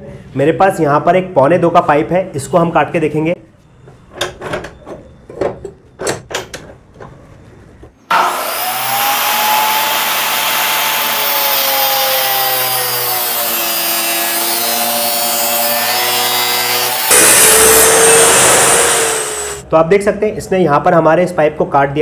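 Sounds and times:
chop saw grinding through pipe: 0:08.1 - 0:19.6.

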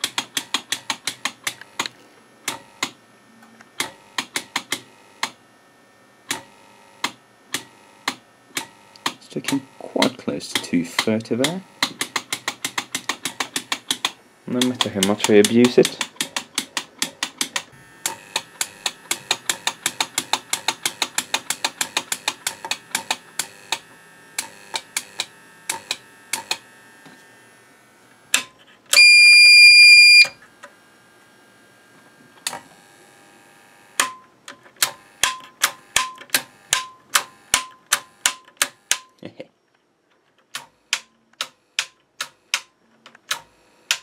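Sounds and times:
power supply relay clicking: 0:06.3 - 0:26.6, 0:34.0 - 0:39.1, 0:40.4 - 0:44.0
loud high beep: 0:29.0 - 0:30.4.

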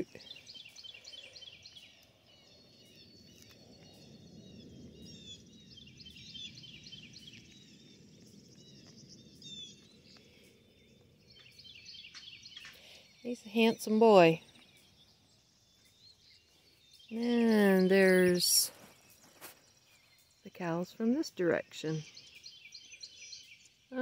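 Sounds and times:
small birds twittering: 0:00.0 - 0:24.0
soft low rumble: 0:01.8 - 0:11.7.

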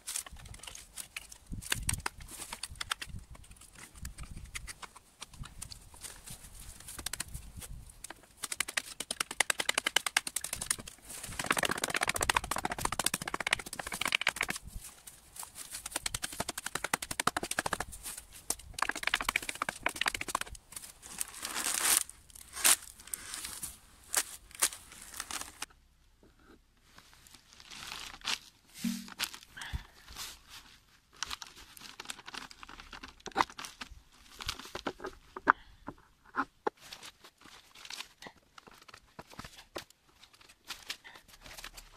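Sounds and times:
dry reeds rustling and crackling: 0:00.0 - 0:25.7, 0:26.8 - 0:35.2
sparse clicks and taps: 0:08.0 - 0:14.6, 0:15.8 - 0:17.9, 0:18.5 - 0:20.6.

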